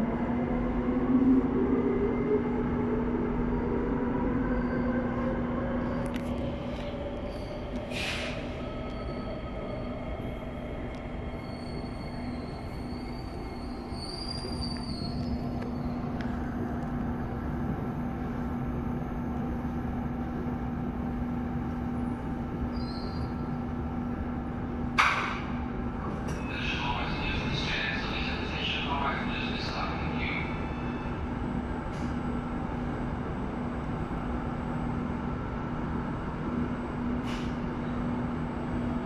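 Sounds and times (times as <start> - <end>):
train wheels rumbling on rail: 5.2 - 39.0
high-pitched wheel squeal: 11.4 - 15.9.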